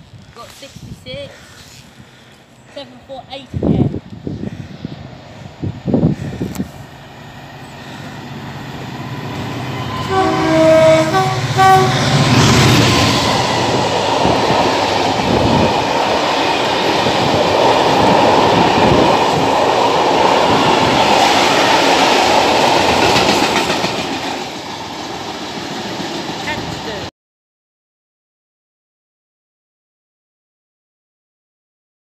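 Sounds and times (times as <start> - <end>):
two-tone locomotive horn: 9.7 - 13.8.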